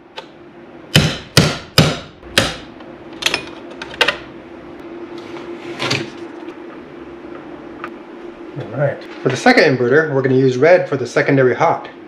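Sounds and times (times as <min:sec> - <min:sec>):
hammer striking metal: 0:00.9 - 0:02.7.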